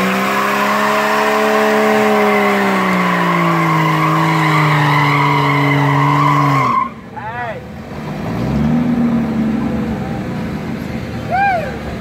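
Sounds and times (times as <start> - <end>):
engine revving high: 0.0 - 6.8, 8.0 - 10.3
tyres squealing: 2.0 - 7.1.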